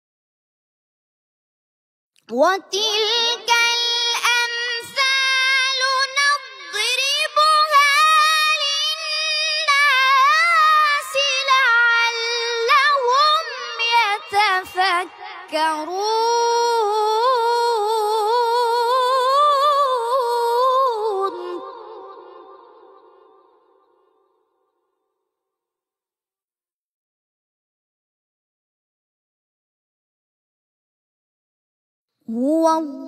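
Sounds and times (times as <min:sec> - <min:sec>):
boy reciting melodically: 0:02.3 - 0:22.4, 0:32.3 - 0:33.0.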